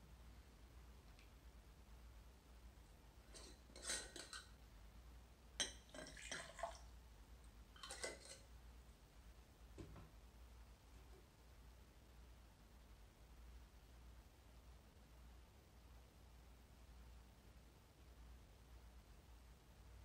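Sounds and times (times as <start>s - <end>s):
metal jar lid scraping and clinking: 3.3s - 4.5s, 7.8s - 8.5s.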